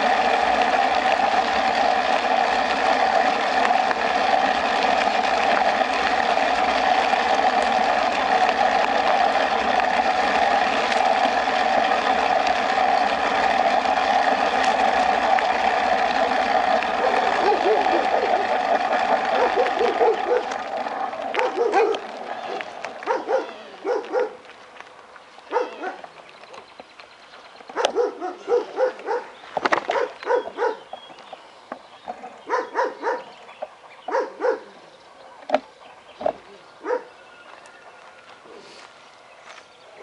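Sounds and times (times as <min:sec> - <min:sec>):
dog barking: 0:17.0 - 0:18.0, 0:19.3 - 0:20.5, 0:21.4 - 0:22.0, 0:23.0 - 0:24.4, 0:25.5 - 0:26.0, 0:27.8 - 0:29.3, 0:29.9 - 0:30.8, 0:32.5 - 0:33.3, 0:34.1 - 0:34.7, 0:36.8 - 0:37.1.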